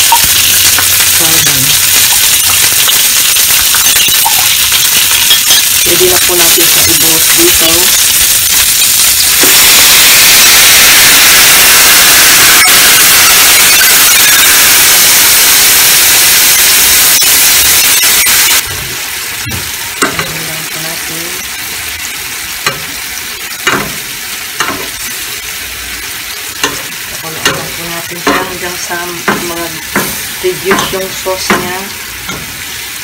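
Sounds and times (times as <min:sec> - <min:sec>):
sauce bubbling simmer: 0:00.0 - 0:05.9
sauce sizzling in a hot pan: 0:00.0 - 0:33.0.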